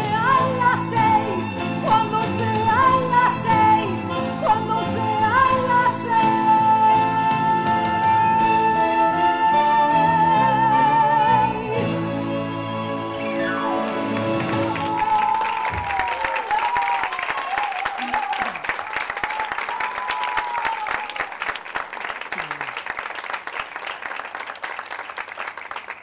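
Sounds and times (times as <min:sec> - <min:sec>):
music: 0:00.0 - 0:16.2
audience applauding: 0:13.2 - 0:26.0.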